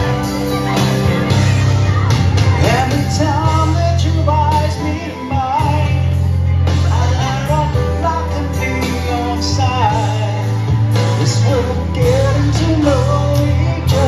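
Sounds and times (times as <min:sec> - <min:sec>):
pop accompaniment with bass: 0:00.0 - 0:14.0
man singing into microphone: 0:02.5 - 0:14.0.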